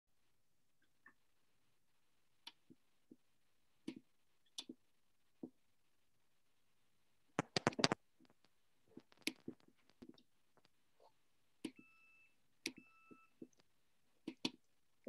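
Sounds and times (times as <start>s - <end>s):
sharp clicks and taps: 7.4s - 10.8s.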